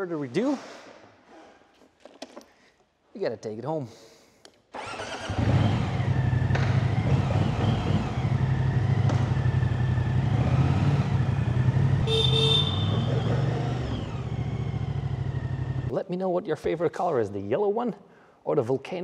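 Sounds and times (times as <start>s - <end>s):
motorcycle engine rumbling: 4.8s - 15.9s.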